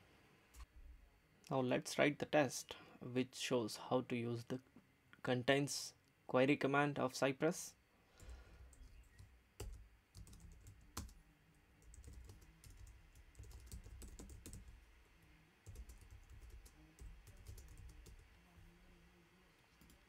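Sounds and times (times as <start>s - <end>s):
faint keyboard typing: 8.2s - 19.0s, 19.6s - 20.0s.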